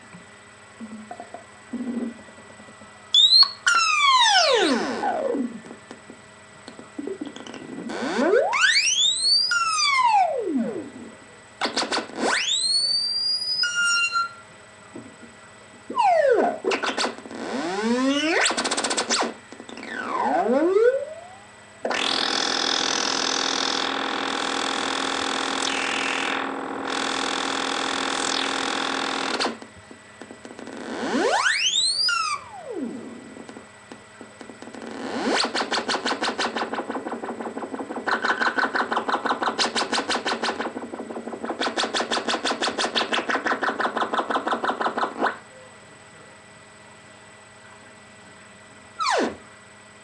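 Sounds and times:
buzzy synthesizer tone: 0:00.8 - 0:05.8, 0:06.7 - 0:14.4, 0:15.9 - 0:29.6, 0:30.5 - 0:33.7, 0:34.5 - 0:45.7, 0:49.0 - 0:49.5
fast pulsing synth tone: 0:03.1 - 0:05.7, 0:07.0 - 0:14.4, 0:15.9 - 0:29.5, 0:34.6 - 0:45.8
synthesizer pitch sweeps: 0:03.1 - 0:05.7, 0:07.0 - 0:14.4, 0:15.9 - 0:29.5, 0:30.7 - 0:33.4, 0:34.8 - 0:45.5.

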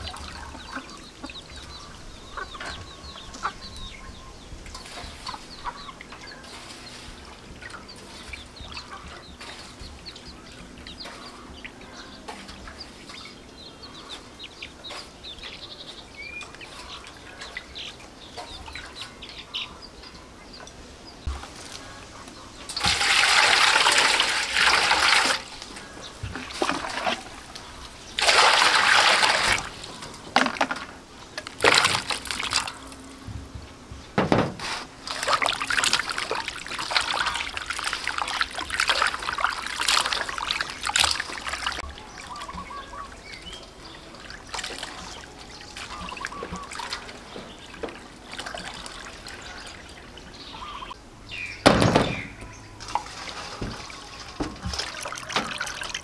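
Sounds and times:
water pouring into metal pot: 0:22.8 - 0:25.6
hands splashing in water: 0:28.2 - 0:30.5, 0:31.5 - 0:32.8, 0:35.0 - 0:41.8
thump: 0:34.2 - 0:34.8, 0:51.6 - 0:52.3.

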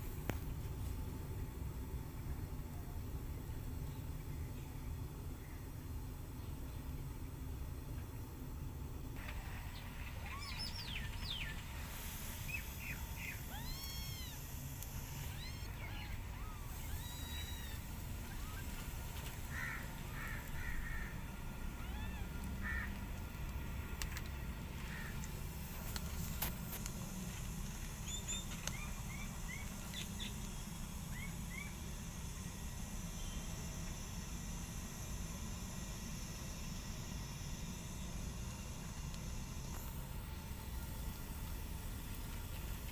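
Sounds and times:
steady low hum: 0:00.0 - 0:42.9
faint animal chirps: 0:12.5 - 0:18.8
kittens mewing: 0:13.4 - 0:14.5, 0:15.2 - 0:18.7, 0:21.7 - 0:22.9.

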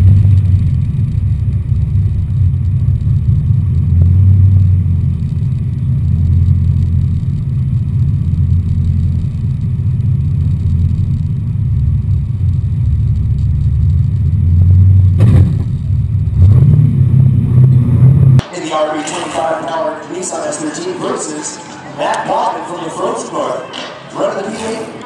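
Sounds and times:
car engine idling: 0:00.0 - 0:18.4.

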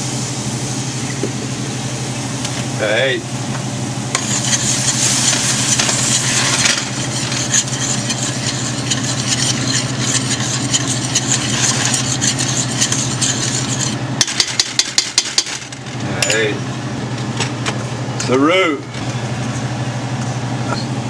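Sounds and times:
steady low hum: 0:00.0 - 0:21.0
roux sizzling in a pot: 0:04.1 - 0:15.7
utensil scraping and clicking: 0:04.1 - 0:15.8.

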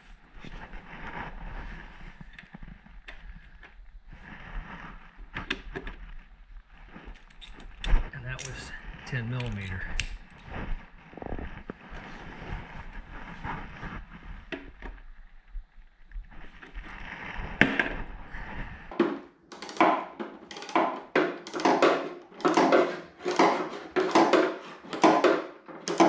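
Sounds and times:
handling noise with knocks: 0:18.9 - 0:26.0.

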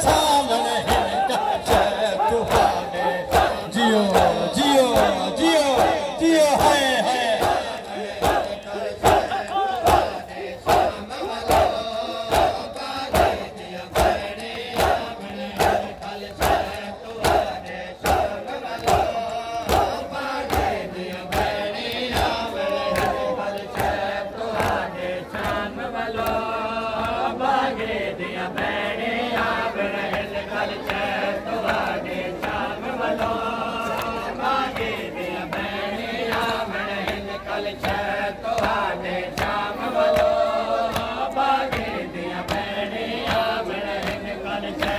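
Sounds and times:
chest-beating slaps in unison: 0:00.0 - 0:27.2, 0:37.8 - 0:44.9
men chanting together: 0:00.0 - 0:44.9.

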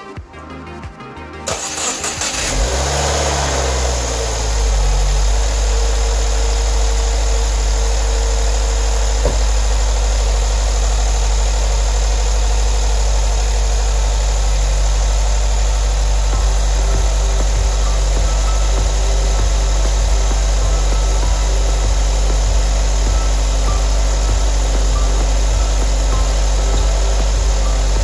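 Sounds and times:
car engine starting and idling: 0:01.4 - 0:28.0
car door shutting: 0:09.1 - 0:09.8.

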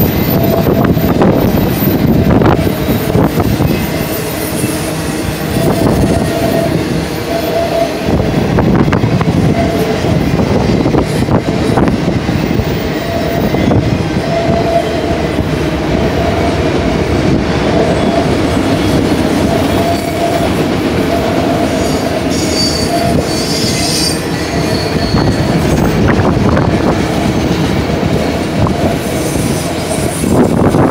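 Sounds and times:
wheel squeal: 0:00.0 - 0:08.0, 0:17.7 - 0:26.2
freight train wheels rumbling: 0:00.0 - 0:30.9.

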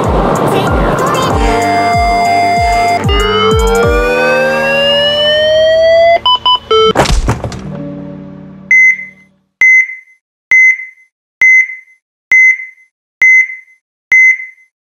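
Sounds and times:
music sting chord: 0:00.1 - 0:06.2, 0:07.6 - 0:09.4
electronic heart monitor beeps: 0:01.4 - 0:04.2, 0:05.9 - 0:07.0, 0:08.7 - 0:14.7.

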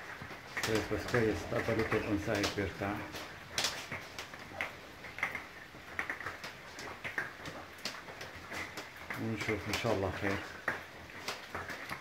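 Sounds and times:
parrots chirping and clicking: 0:00.0 - 0:12.0.

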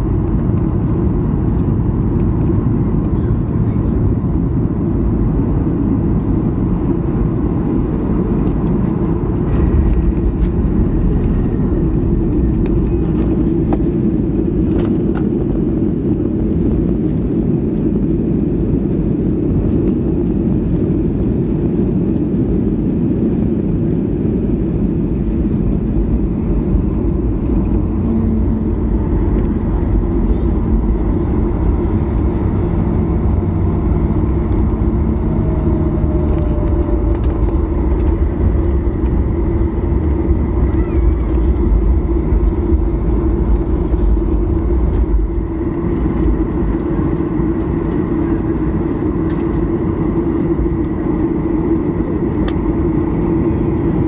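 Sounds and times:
vehicle rumbling: 0:00.0 - 0:54.0
faint rising whine: 0:25.0 - 0:54.0.

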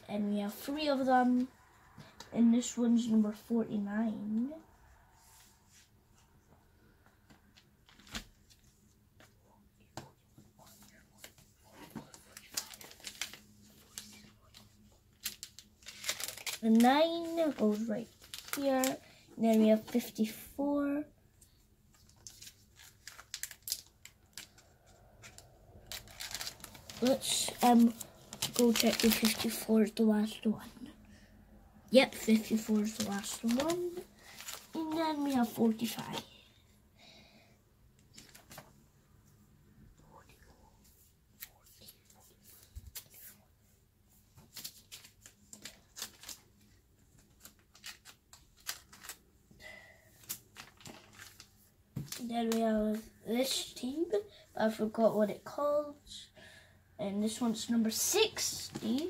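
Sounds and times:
plastic card sleeves crinkling: 0:12.1 - 0:20.0, 0:21.9 - 0:29.7, 0:32.1 - 0:36.2, 0:44.5 - 0:49.3, 0:50.2 - 0:52.6.

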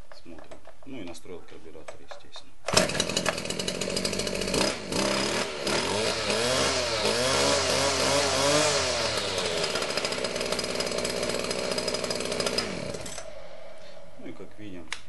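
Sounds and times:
brushcutter engine revving and idling: 0:02.7 - 0:13.7.

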